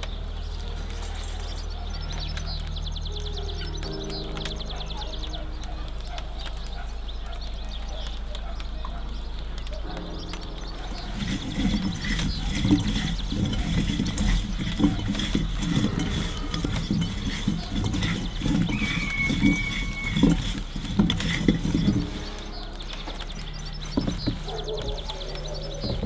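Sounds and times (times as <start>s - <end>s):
vegetables rolling in glass bowl: 0.0s - 26.0s.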